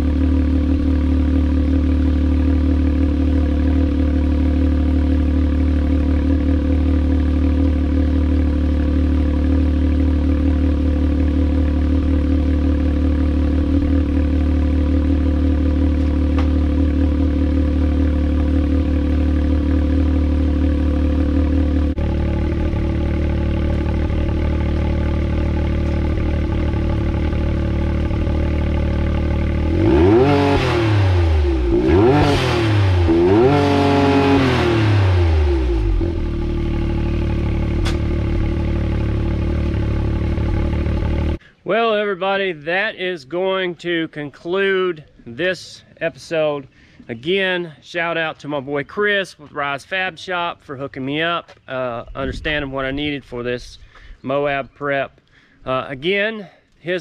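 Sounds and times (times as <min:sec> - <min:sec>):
engine revving: 0:00.0 - 0:41.4
engine idling: 0:00.0 - 0:41.6.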